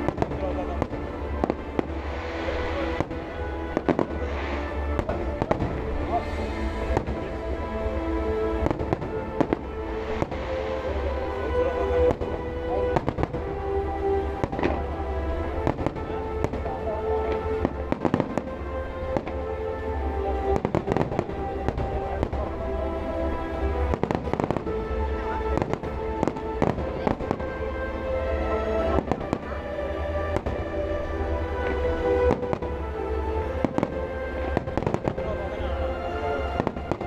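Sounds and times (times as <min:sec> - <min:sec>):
fireworks bursting: 0:00.0 - 0:19.6, 0:20.5 - 0:22.6, 0:23.4 - 0:28.1, 0:28.7 - 0:35.7, 0:36.4 - 0:37.0
music with long held notes: 0:00.0 - 0:37.0.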